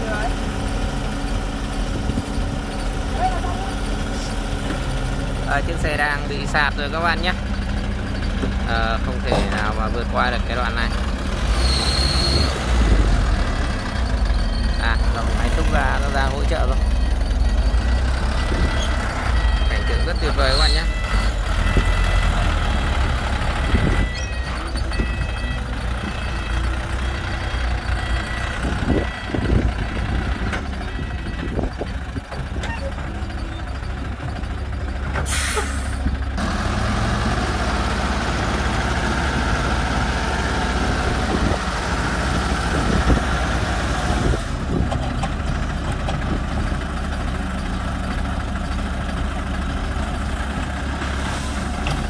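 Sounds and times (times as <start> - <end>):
diesel engines under load: 0.0 - 52.0
high beeping: 8.1 - 22.6, 23.7 - 29.7.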